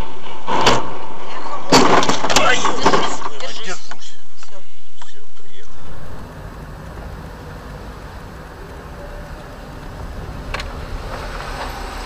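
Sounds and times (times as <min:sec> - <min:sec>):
car engine and tyre rumble: 0:05.6 - 0:12.0.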